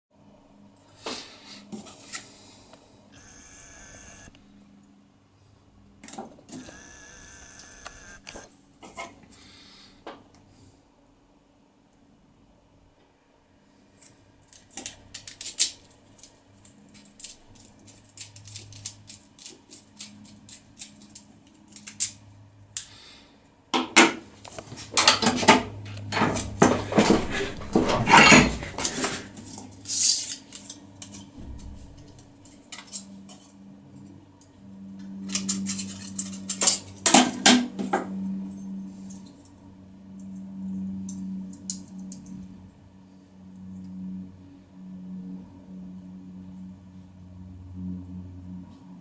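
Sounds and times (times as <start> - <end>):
aluminium foil crinkling: 14.4 - 22.2
small metal parts clinking: 14.5 - 22.2, 35.3 - 36.9
metal clattering and scraping: 24.7 - 32.2.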